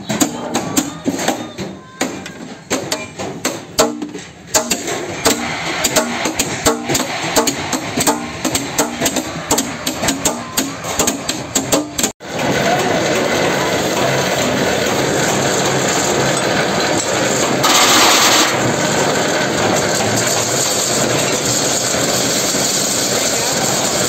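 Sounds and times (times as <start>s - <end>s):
lathe running: 12.2s - 24.0s.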